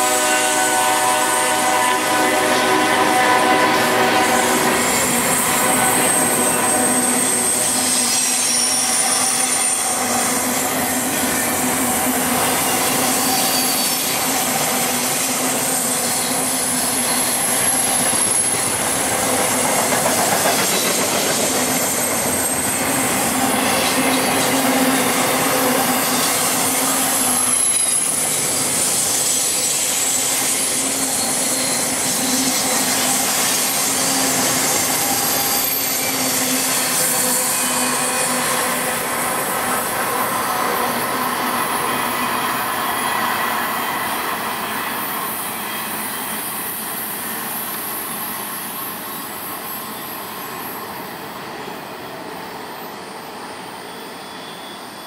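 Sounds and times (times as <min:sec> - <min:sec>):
steel wheels rumbling on rail: 0:00.0 - 0:55.0
high-pitched wheel squeals: 0:01.4 - 0:18.8, 0:20.3 - 0:43.6, 0:52.6 - 0:55.0.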